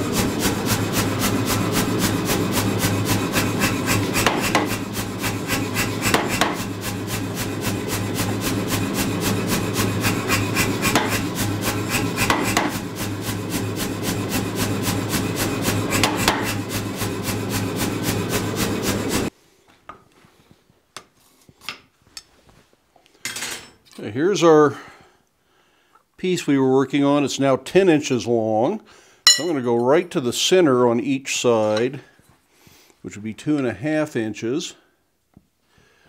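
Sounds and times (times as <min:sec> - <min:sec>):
machine motor hum: 0:00.0 - 0:19.3
power hammer pounding steel: 0:00.0 - 0:19.3.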